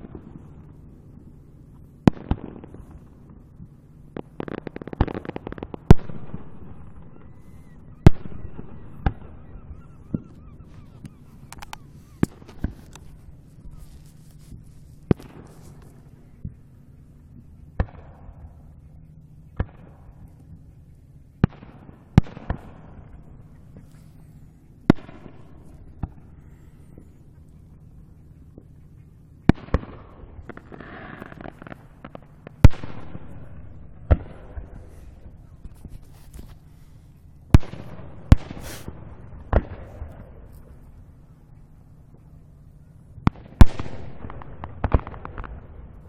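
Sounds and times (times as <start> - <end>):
rumbling echo: 0.0 - 14.0, 14.6 - 36.0, 36.6 - 46.0
fireworks bangs: 4.1 - 16.6, 29.5 - 36.7, 37.5 - 40.8, 43.2 - 46.0.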